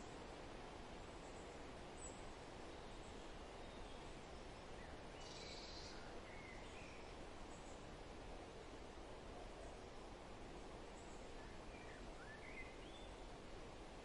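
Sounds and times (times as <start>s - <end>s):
outdoor background hiss: 0.0s - 14.0s
distant bird calls: 4.8s - 7.8s.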